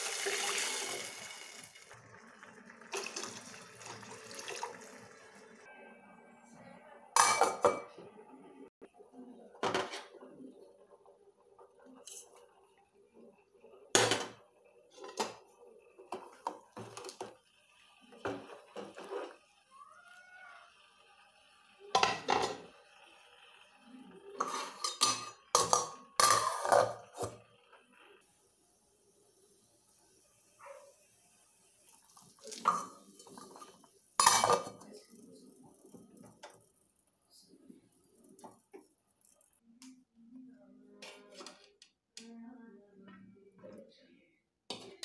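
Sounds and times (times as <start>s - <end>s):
metal lid clanking on pot: 24.4s - 27.3s, 34.2s - 34.7s.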